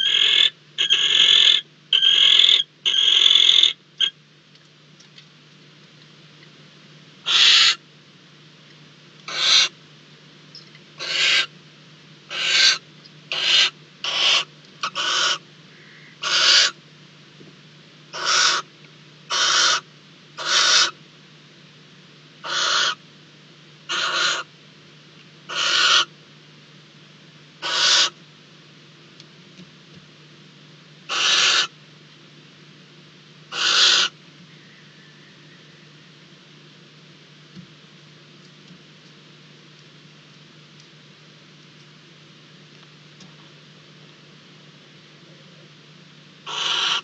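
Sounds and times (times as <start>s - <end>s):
barn owl hissing calls: 0.0s - 4.2s, 7.2s - 7.8s, 9.3s - 9.8s, 11.0s - 11.6s, 12.3s - 16.8s, 18.1s - 18.7s, 19.3s - 21.0s, 22.4s - 23.0s, 23.9s - 24.5s, 25.5s - 26.1s, 27.6s - 28.2s, 31.1s - 31.8s, 33.5s - 36.2s, 46.4s - 47.0s
faint low hum: 0.0s - 47.0s.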